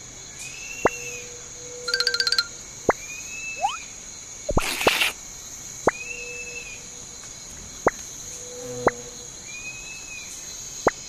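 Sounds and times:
high insect-like hiss: 0:02.6 - 0:11.0.

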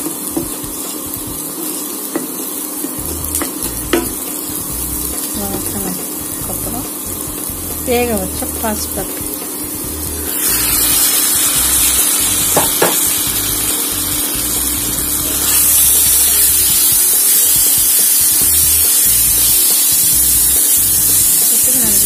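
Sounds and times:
onions sizzling in hot oil: 0:00.0 - 0:22.0
spatula knocks: 0:12.6 - 0:13.2.

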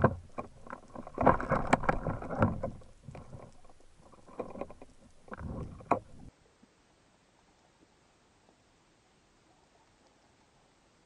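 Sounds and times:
water splashing and sloshing: 0:00.0 - 0:06.7.

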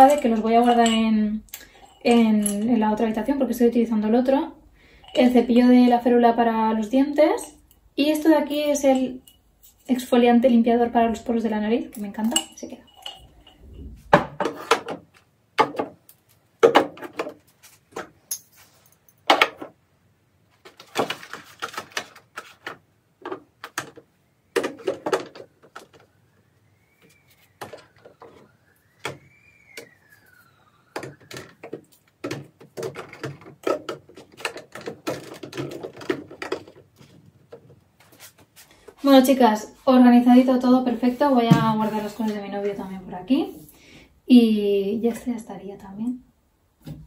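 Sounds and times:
bottles knocking and clattering: 0:00.0 - 0:03.3, 0:12.0 - 0:16.0, 0:16.6 - 0:18.6, 0:23.2 - 0:26.1, 0:30.9 - 0:37.8, 0:41.4 - 0:42.3.

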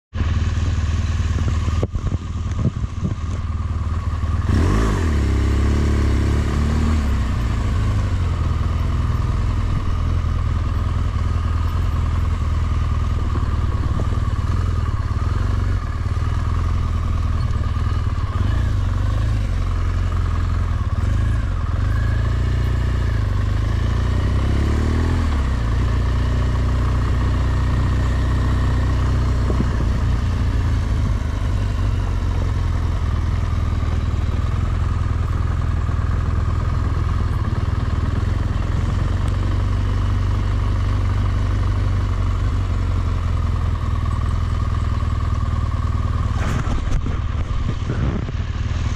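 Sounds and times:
motorcycle engine revving: 0:00.2 - 0:48.9.

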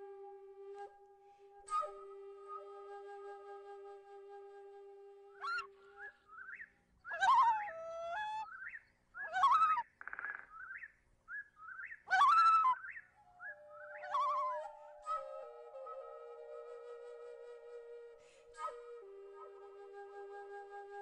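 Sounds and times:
flute music: 0:00.0 - 0:06.3, 0:12.1 - 0:21.0
bird chirps and wavering calls: 0:05.4 - 0:16.3.

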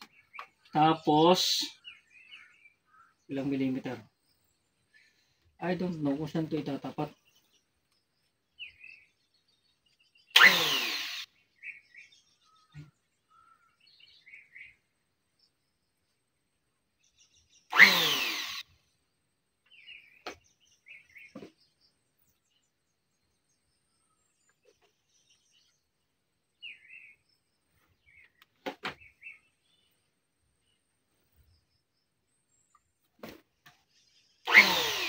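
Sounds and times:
faint bird chirps: 0:00.0 - 0:10.4, 0:11.2 - 0:17.8, 0:18.6 - 0:34.7
electric planer burst: 0:10.4 - 0:11.3, 0:17.7 - 0:18.6, 0:34.5 - 0:35.0.

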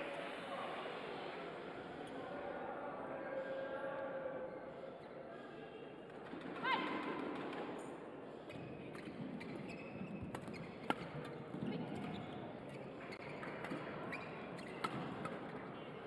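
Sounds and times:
sports hall hum: 0:00.0 - 0:16.0
shoes squeaking on court: 0:09.0 - 0:15.7.

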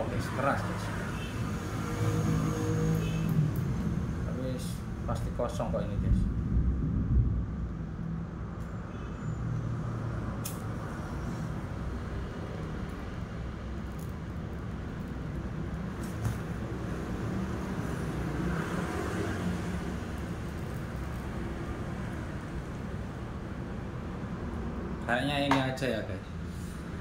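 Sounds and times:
low engine-like rumble: 0:03.0 - 0:08.9.

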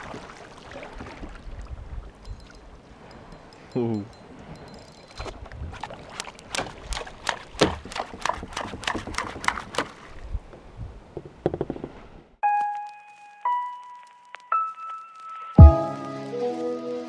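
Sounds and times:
knocks and taps on a kayak: 0:07.6 - 0:09.9, 0:11.1 - 0:12.0.

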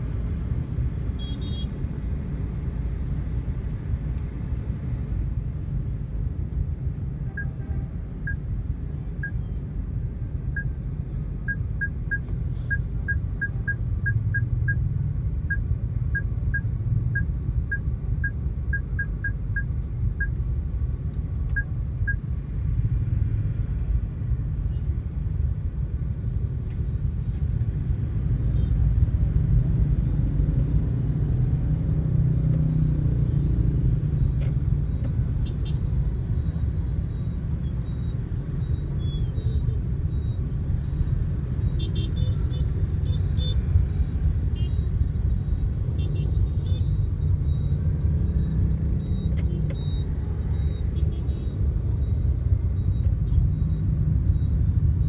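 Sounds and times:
short high-pitched beeps: 0:08.2 - 0:08.5, 0:11.4 - 0:20.4, 0:34.2 - 0:55.0.

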